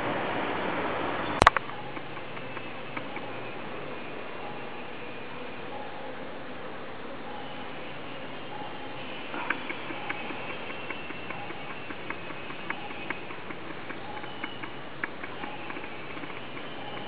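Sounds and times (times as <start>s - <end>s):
light irregular clicks: 1.4s - 3.4s, 9.3s - 17.0s.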